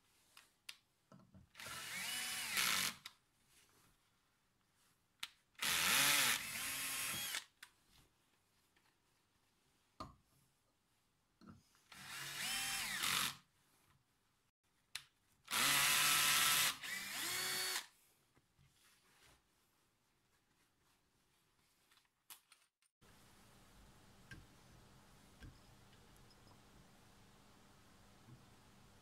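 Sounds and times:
cordless drill boring into metal: 1.6s - 3.0s, 5.6s - 7.5s, 11.9s - 13.4s, 15.5s - 17.9s.

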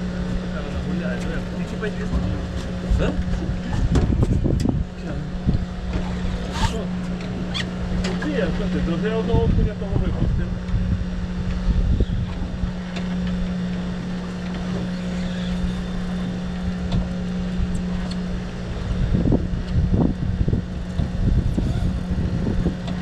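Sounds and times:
low rumbling: 0.0s - 23.0s
outboard motor idling: 0.0s - 23.0s.

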